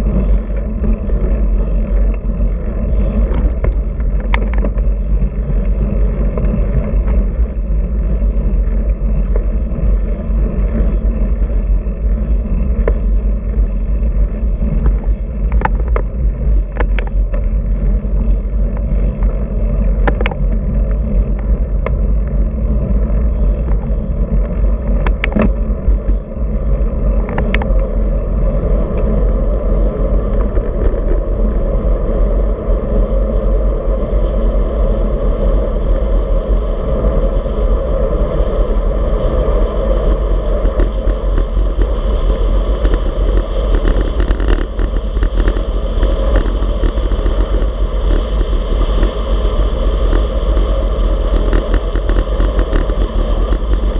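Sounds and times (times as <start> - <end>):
sharp clicks and ticks: 0.0 - 29.2, 30.2 - 31.2, 40.0 - 53.9
tyre and road rumble: 0.0 - 53.9
wind buffeting microphone: 0.0 - 53.9.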